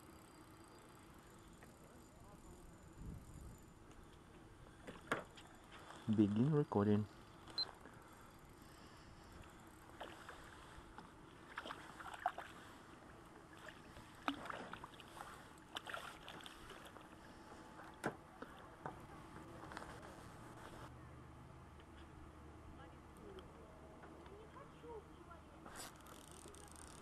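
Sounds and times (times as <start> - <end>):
faint steady background noise: 0.0 - 27.0
fish splashing at water surface: 11.4 - 12.8, 13.5 - 17.2.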